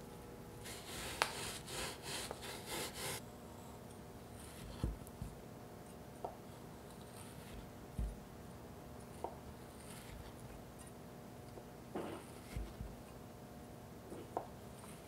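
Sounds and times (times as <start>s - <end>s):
knife rasping through pastry: 0.6s - 3.2s, 9.0s - 11.0s.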